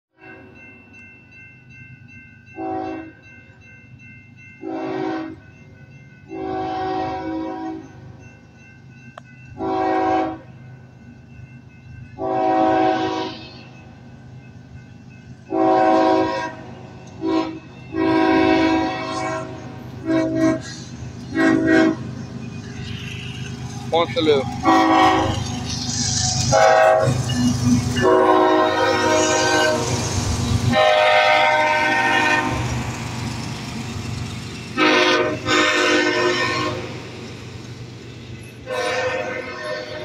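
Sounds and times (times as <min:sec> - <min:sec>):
low rumble of train: 0:00.2 - 0:40.0
locomotive air horn blasts: 0:02.6 - 0:03.1, 0:04.6 - 0:05.4, 0:06.3 - 0:07.8, 0:09.6 - 0:10.4, 0:12.2 - 0:13.5, 0:15.5 - 0:16.6, 0:17.2 - 0:22.0, 0:24.6 - 0:25.4, 0:26.5 - 0:27.2, 0:28.0 - 0:30.0, 0:30.7 - 0:32.7, 0:34.8 - 0:37.1, 0:38.6 - 0:40.0.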